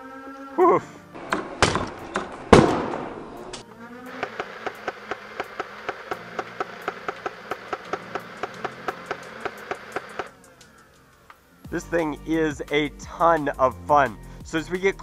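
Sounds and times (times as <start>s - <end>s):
toy blaster firing full auto: 4.1s - 10.3s.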